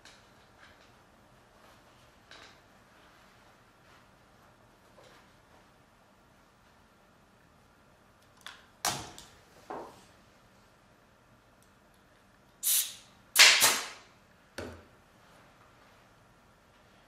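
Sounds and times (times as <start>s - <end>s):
pneumatic staple gun firing: 12.6s - 14.0s.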